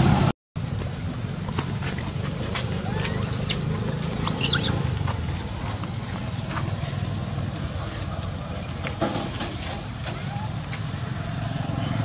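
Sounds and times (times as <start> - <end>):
baby macaque squealing: 2.7 - 4.9, 10.0 - 10.6
faint short monkey calls: 2.8 - 3.7.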